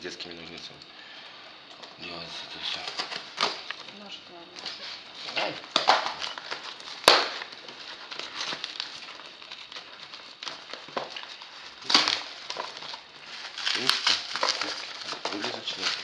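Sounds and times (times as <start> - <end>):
plastic wrapping crackling: 1.5 - 16.0
plastic tearing snap: 2.8 - 3.9, 4.6 - 16.0.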